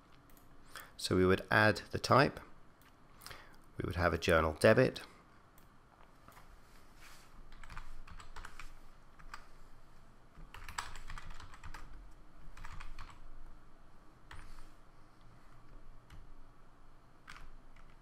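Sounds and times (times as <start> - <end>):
typing on computer keyboard: 7.5 - 9.4, 10.4 - 13.2, 17.2 - 18.0.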